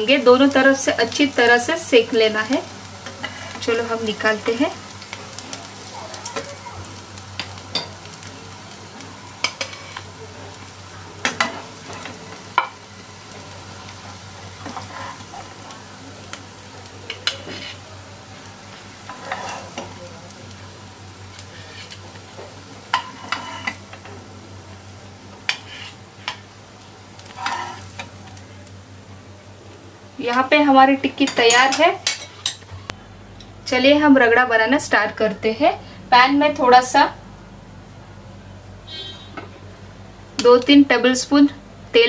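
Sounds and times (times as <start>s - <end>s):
oil sizzling in a pan: 0.0s - 32.9s
metal spatula scraping a pan: 14.6s - 15.3s, 17.2s - 17.8s, 19.1s - 19.9s, 23.0s - 23.8s, 25.5s - 26.4s, 27.3s - 28.1s.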